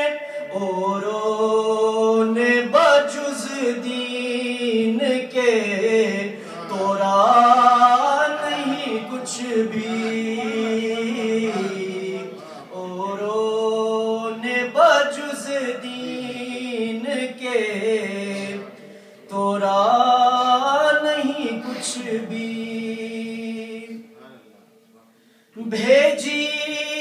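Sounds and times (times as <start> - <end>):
man singing unaccompanied: 0.0 - 24.2, 25.6 - 27.0.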